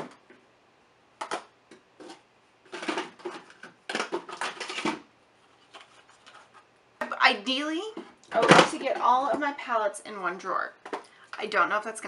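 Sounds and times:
makeup cases clattering: 2.7s - 5.1s, 7.9s - 9.5s.

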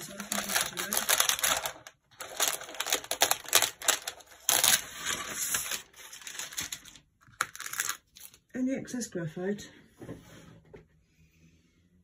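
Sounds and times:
paper crackling and rustling: 0.0s - 8.4s.

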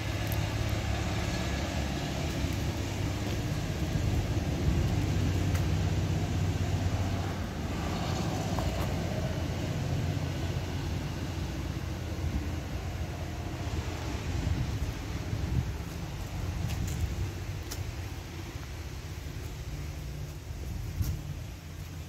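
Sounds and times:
engine humming: 0.0s - 22.0s.

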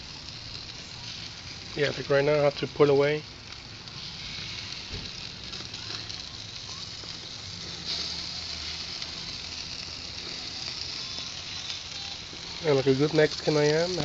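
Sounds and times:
fat dripping and flaring on coals: 0.0s - 14.0s
patties sizzling on a grill: 0.0s - 14.0s.

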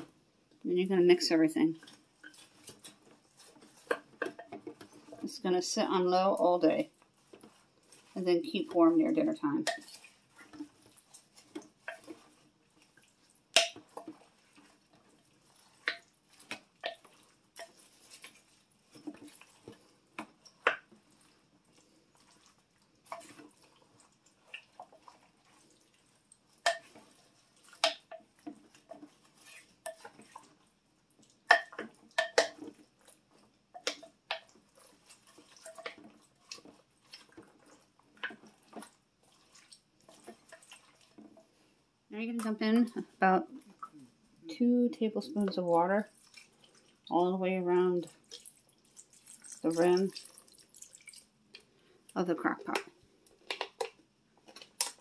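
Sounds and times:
wooden spoon stirring thick mix: 0.0s - 55.0s.

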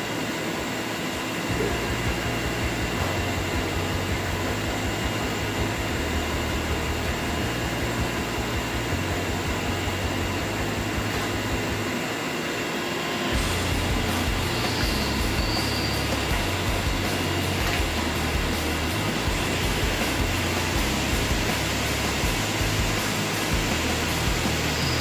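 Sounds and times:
faint constant tones: 0.0s - 25.0s
machine drone: 0.0s - 25.0s.

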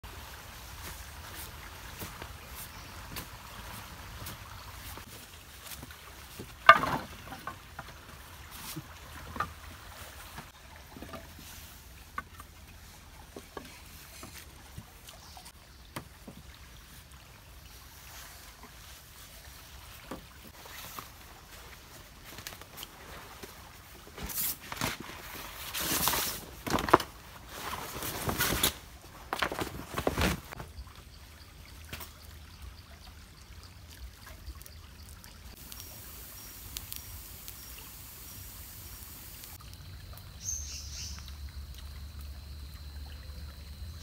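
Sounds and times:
water splashing and pouring: 0.0s - 40.6s.

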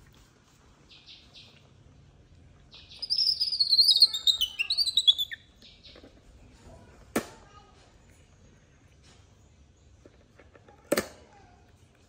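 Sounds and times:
baby monkey crying: 3.0s - 5.4s.

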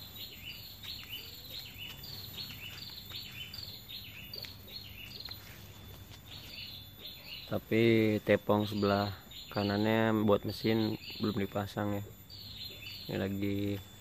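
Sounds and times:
bird chirping: 0.0s - 14.0s
low background noise: 0.0s - 14.0s.

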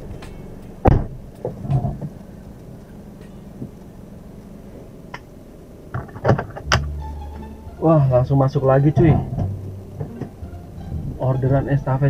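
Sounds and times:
faint clicks: 0.0s - 7.5s
car engine idling: 0.0s - 12.0s.

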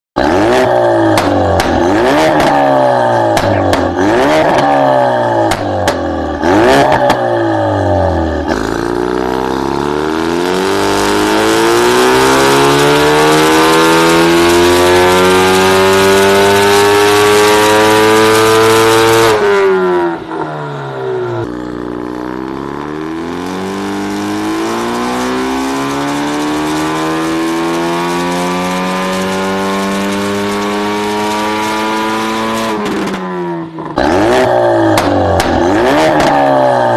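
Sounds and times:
car engine revving under load: 0.2s - 36.9s.

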